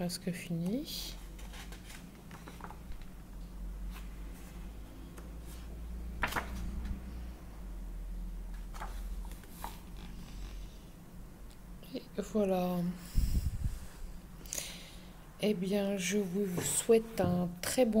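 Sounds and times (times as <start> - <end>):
paper pages rustling: 1.2 - 3.1, 5.5 - 7.0, 8.5 - 10.4.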